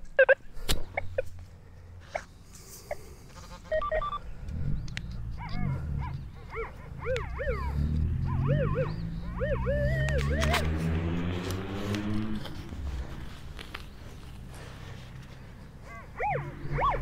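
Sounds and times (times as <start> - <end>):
animal calling: 2.9 - 4.2, 5.2 - 10.8, 15.8 - 17.0
short steady beeps: 3.6 - 4.2.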